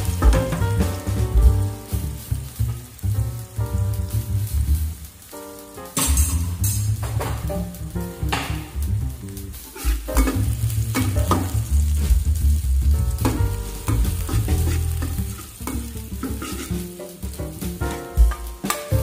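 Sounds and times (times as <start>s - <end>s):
garlic sizzling in a wok: 0.0s - 19.0s
ladle scraping and knocking pan: 9.6s - 11.6s, 13.2s - 19.0s.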